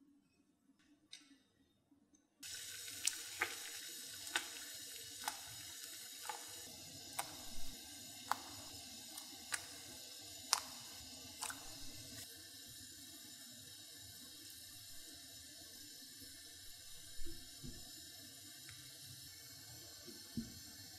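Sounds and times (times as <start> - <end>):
water boiling in a pot: 2.4 - 20.9
dough dropping into water: 2.5 - 9.9, 10.5 - 12.0.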